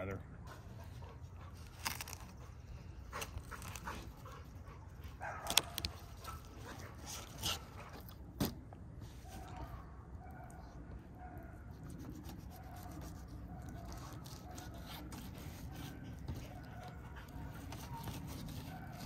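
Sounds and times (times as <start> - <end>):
dog barking: 5.2 - 6.4, 9.3 - 11.7, 12.5 - 15.1, 15.7 - 19.0.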